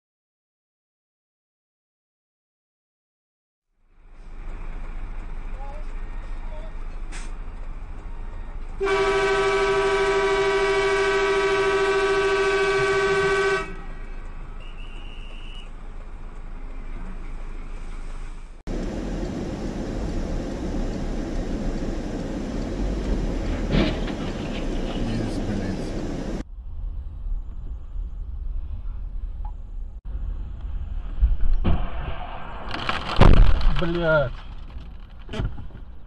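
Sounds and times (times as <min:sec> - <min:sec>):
road and engine rumble inside car: 0:03.9 - 0:09.6, 0:13.7 - 0:26.5
vehicle horn blast: 0:08.8 - 0:13.9.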